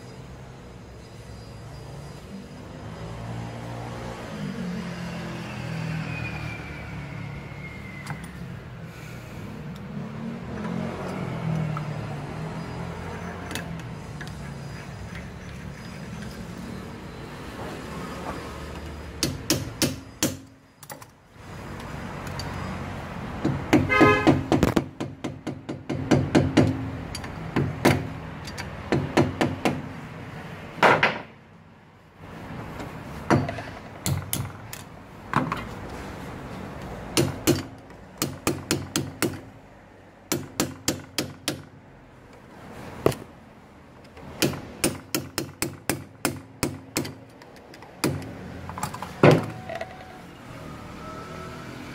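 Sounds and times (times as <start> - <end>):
hand tools tapping metal: 23.4 - 29.8.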